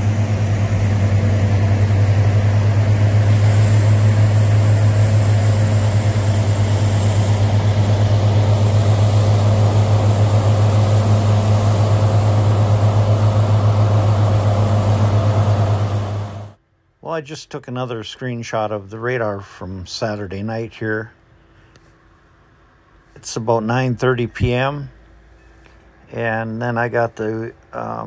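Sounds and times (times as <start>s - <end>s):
heavy diesel engine droning: 0.0s - 16.6s.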